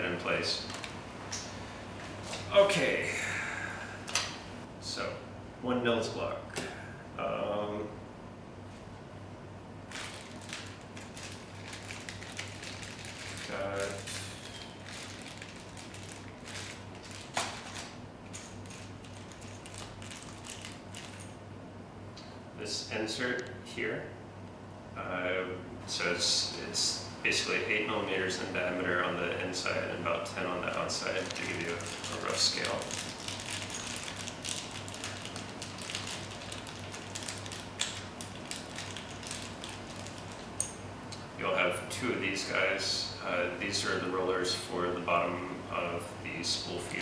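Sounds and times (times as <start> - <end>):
low electrical hum: 0.0 - 47.0
plastic bag rustling: 9.9 - 21.4, 30.4 - 40.6.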